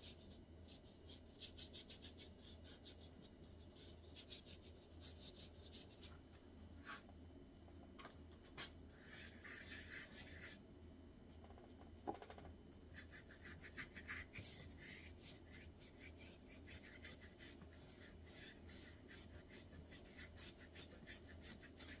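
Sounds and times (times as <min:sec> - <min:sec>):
paintbrush brushing over paper: 0:08.9 - 0:10.6, 0:12.9 - 0:22.0.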